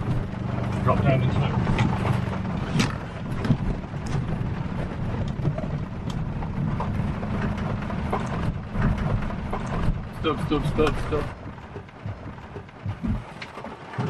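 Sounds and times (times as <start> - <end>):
rain falling on vehicle: 0.0 - 14.0
truck engine running: 0.0 - 14.0
knocks from vehicle: 10.8 - 14.0.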